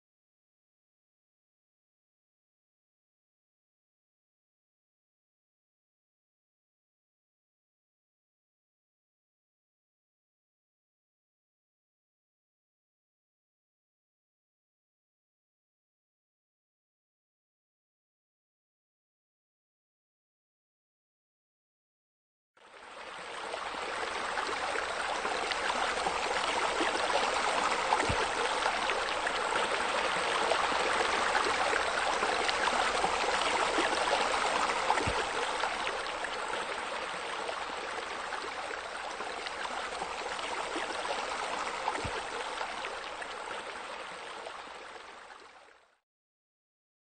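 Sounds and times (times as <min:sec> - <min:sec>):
running splashing water: 0:25.2 - 0:38.0.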